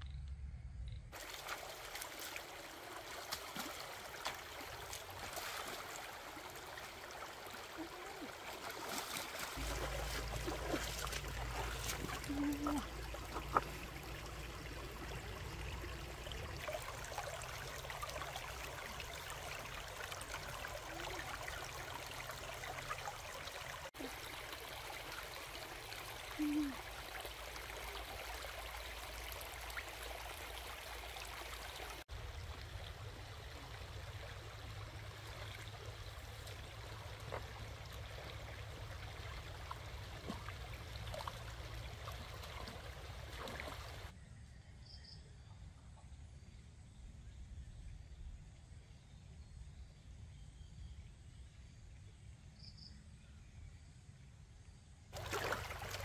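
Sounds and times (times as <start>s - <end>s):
stream trickling over rocks: 1.1s - 44.1s, 55.1s - 56.0s.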